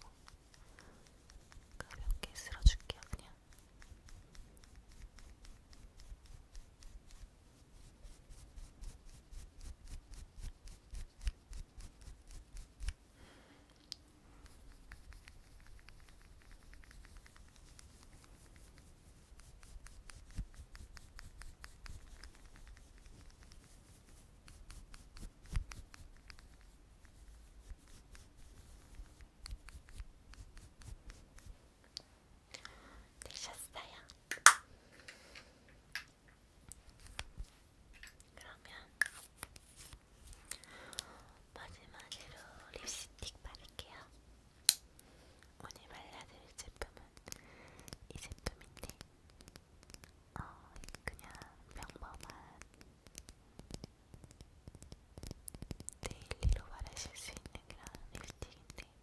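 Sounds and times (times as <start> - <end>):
rubbing against microphone: 0.0 - 13.0, 14.4 - 31.6, 38.4 - 40.6.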